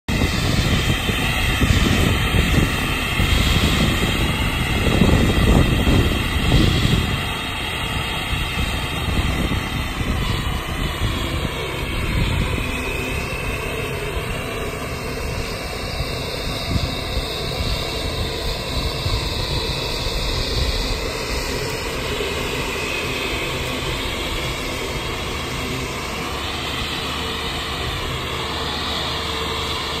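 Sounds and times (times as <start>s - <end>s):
low machinery rumble: 0.1s - 30.0s
mower machinery whining: 0.1s - 30.0s.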